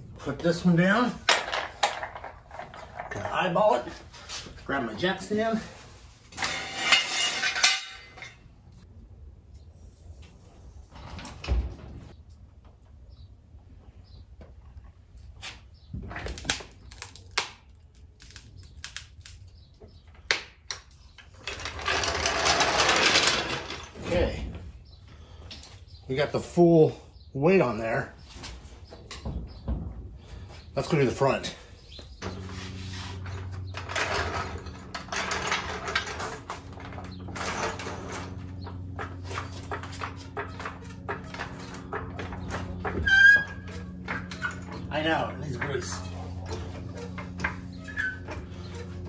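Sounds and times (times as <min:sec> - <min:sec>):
floor jack rolling on concrete: 0:01.0 - 0:08.4, 0:21.1 - 0:24.7, 0:29.1 - 0:49.0
steady low hum: 0:27.0 - 0:49.0.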